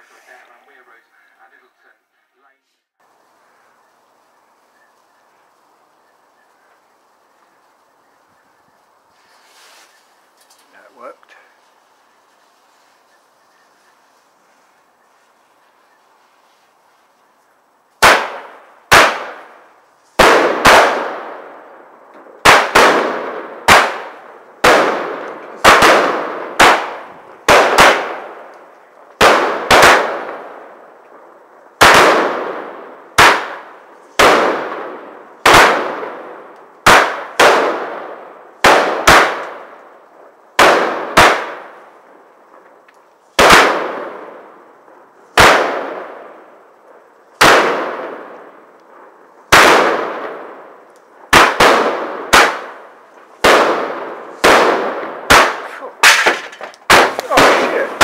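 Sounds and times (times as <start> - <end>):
firework bangs: 18.0 - 58.0.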